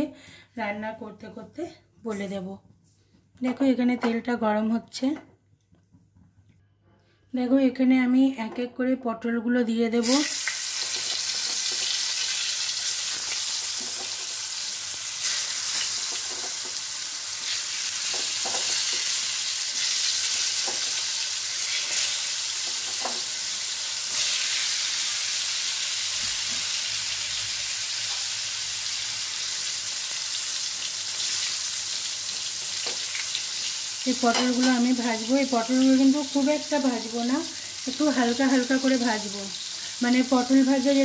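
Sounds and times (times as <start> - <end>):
vegetables sizzling in oil: 10.0 - 41.0.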